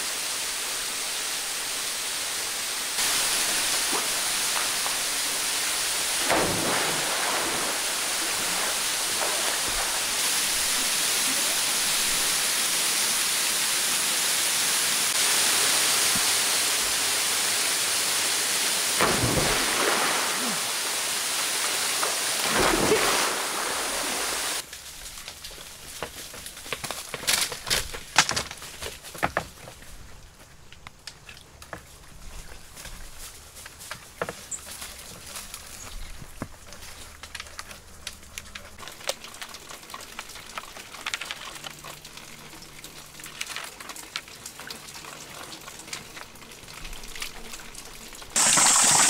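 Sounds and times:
waterfall pouring into pool: 0.0s - 24.7s, 39.0s - 49.0s.

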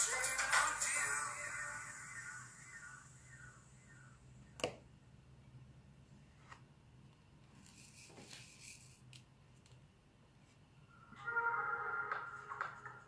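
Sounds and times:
soft rustle of tray: 7.5s - 9.0s.

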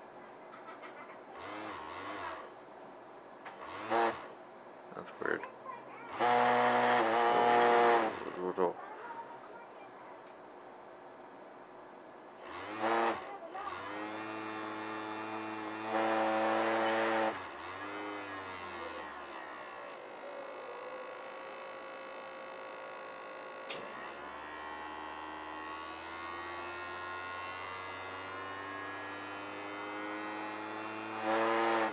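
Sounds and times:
small electric motor humming: 1.3s - 2.6s, 3.5s - 4.4s, 6.1s - 8.8s, 12.4s - 31.9s.

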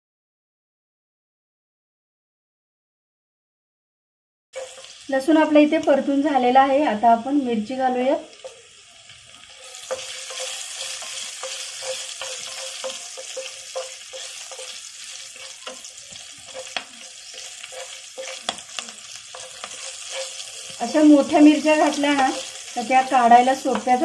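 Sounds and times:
spatula knocking and scraping pan: 4.6s - 5.0s, 9.8s - 24.0s
hot oil sizzling: 4.6s - 24.0s.

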